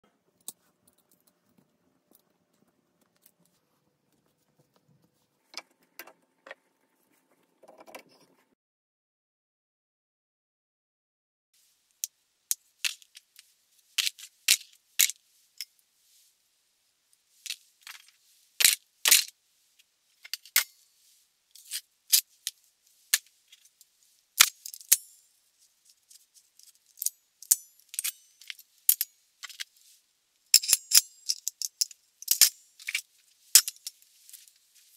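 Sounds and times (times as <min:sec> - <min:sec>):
steel clamp bar and screw: 0:30.6 - 0:33.0, 0:33.6 - 0:34.0.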